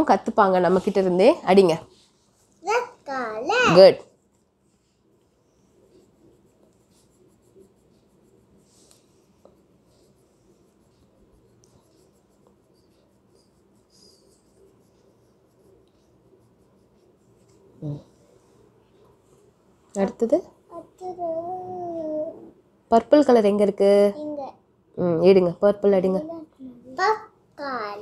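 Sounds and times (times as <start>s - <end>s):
crayon scratching on paper: 5.6s - 17.8s.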